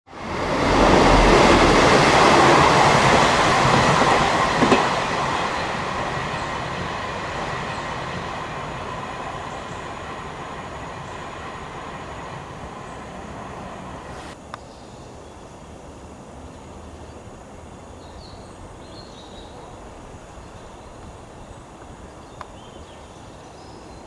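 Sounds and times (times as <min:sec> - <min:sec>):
train passing: 0:00.1 - 0:14.4.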